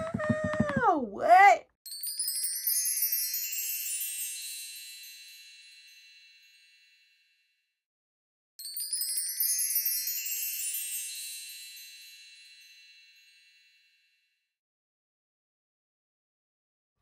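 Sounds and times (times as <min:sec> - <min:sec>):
high tinkling chimes: 0:01.9 - 0:07.7, 0:08.6 - 0:14.5.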